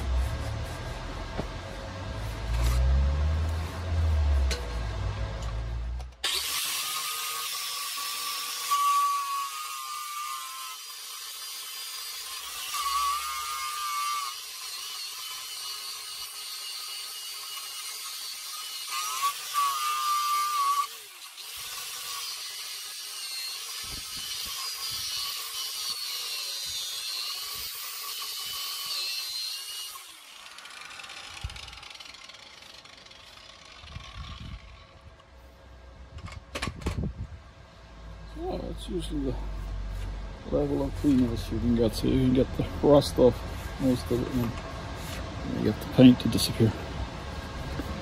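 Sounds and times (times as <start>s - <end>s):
angle grinder whining: 0.0s - 35.4s.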